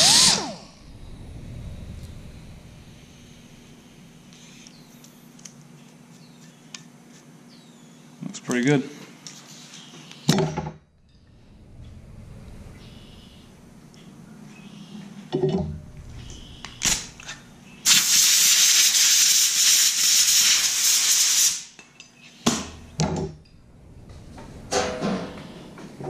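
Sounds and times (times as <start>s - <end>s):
air die grinder hissing: 17.8s - 21.7s.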